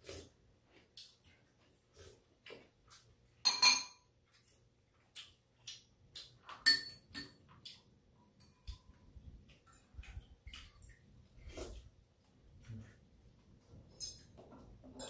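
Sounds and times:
utensils clinking against bowls: 0:03.4 - 0:04.1, 0:06.6 - 0:07.5.

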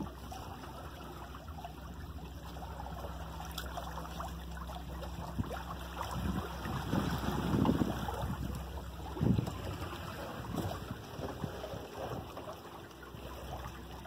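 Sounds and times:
water splashing along hulls: 0:00.0 - 0:14.0
wind buffeting microphone: 0:05.2 - 0:12.4.

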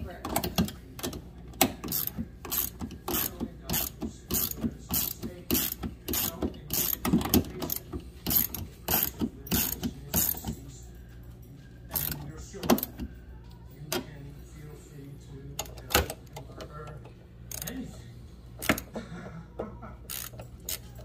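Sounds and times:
hand ratchet clicking: 0:00.3 - 0:10.6, 0:11.9 - 0:12.9, 0:17.5 - 0:17.8, 0:20.1 - 0:21.0.

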